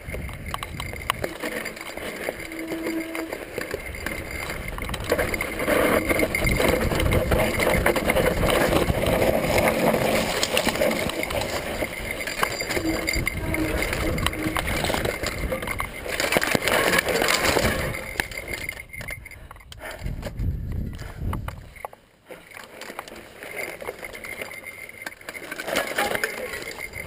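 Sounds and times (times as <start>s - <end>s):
wind on microphone: 0.0s - 1.4s, 3.8s - 10.0s, 11.1s - 16.2s, 17.5s - 21.8s
bike rattling: 0.0s - 27.0s
bike tyres rolling over dirt: 0.0s - 27.0s.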